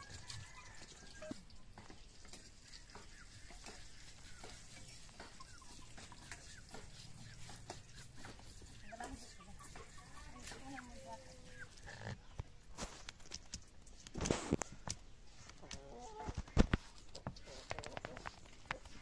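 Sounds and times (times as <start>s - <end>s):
food sizzling in a pan: 0.0s - 11.1s.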